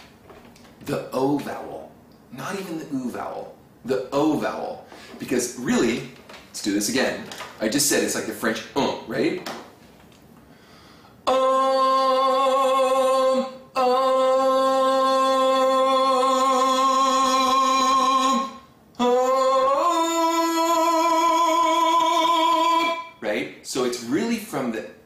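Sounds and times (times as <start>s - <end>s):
man singing long notes: 11.2s - 23.2s.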